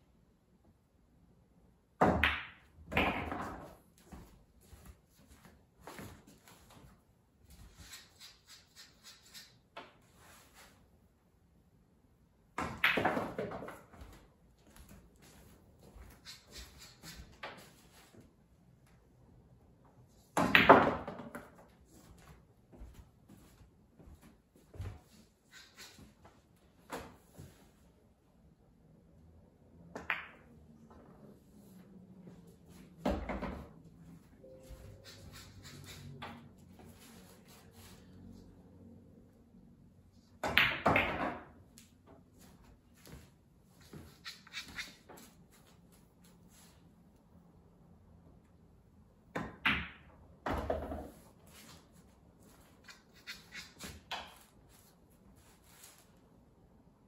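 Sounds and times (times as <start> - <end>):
pool balls clacking: 12.6 - 13.9, 40.4 - 41.6.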